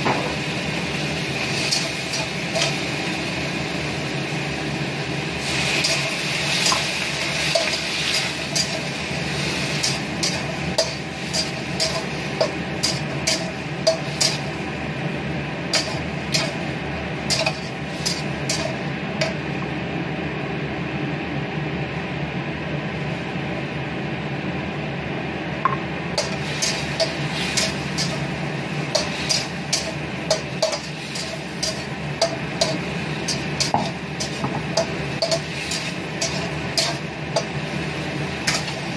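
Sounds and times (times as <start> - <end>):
shrimp and onions sizzling in wok: 0.0 - 20.2, 25.6 - 38.9
metal spatula scraping pan: 28.9 - 37.6.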